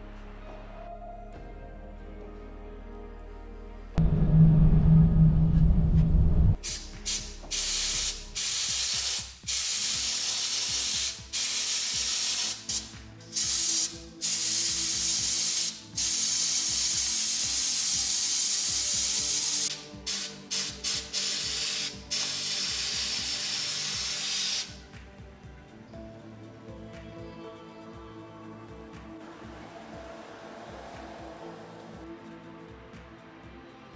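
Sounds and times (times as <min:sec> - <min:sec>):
low musical note: 0:03.9 - 0:06.6
sandblasting gun hissing: 0:06.6 - 0:24.7.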